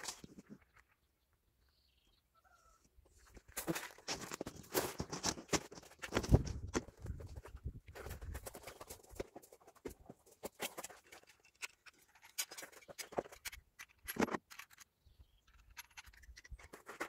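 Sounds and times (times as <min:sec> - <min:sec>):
footsteps on gravel: 0:03.1 - 0:07.3.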